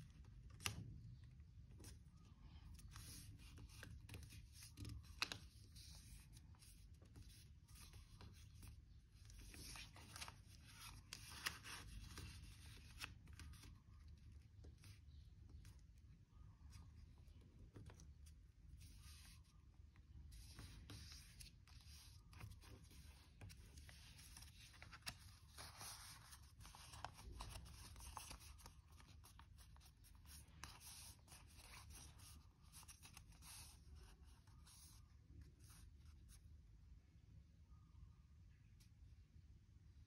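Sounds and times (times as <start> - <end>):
paper rustling: 2.7 - 13.8, 20.3 - 35.0.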